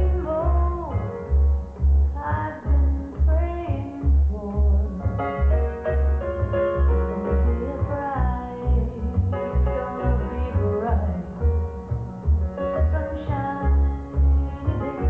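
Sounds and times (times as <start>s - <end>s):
song through loudspeakers: 0.0s - 15.0s.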